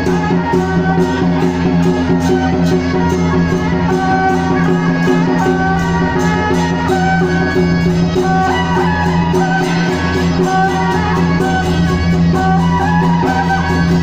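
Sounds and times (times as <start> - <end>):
percussion beat: 0.0 - 14.0
wind instrument melody: 0.0 - 14.0.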